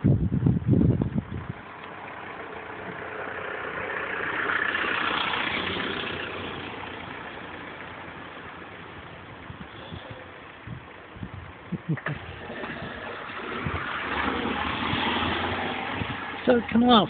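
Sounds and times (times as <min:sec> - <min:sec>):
car driving past: 0:01.9 - 0:07.9, 0:12.2 - 0:16.6.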